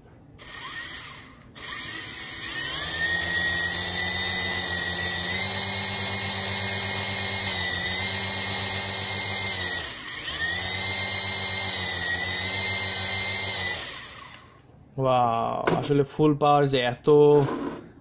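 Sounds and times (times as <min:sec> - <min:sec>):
toy helicopter motor whine: 0:00.4 - 0:14.6.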